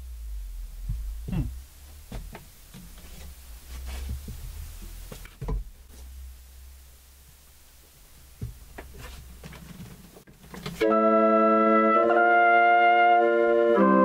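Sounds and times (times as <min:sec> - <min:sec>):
steady low hum: 0:00.0 - 0:10.8.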